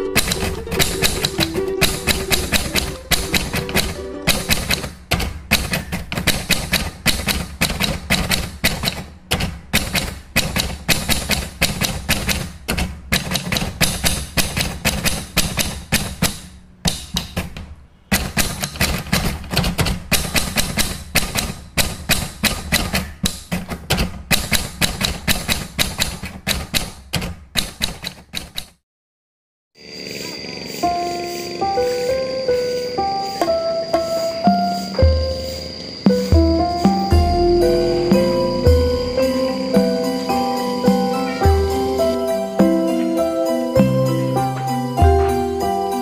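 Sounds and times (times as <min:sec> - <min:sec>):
keyboard typing clicks: 0:00.0 - 0:17.4.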